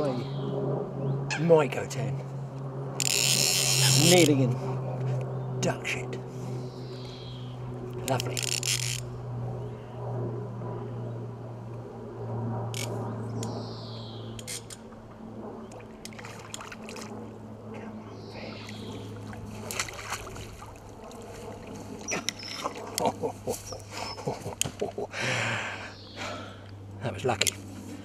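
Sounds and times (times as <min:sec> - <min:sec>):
steady low hum: 0:00.0 - 0:28.0
fish splashing in water: 0:15.7 - 0:17.2, 0:18.7 - 0:23.0.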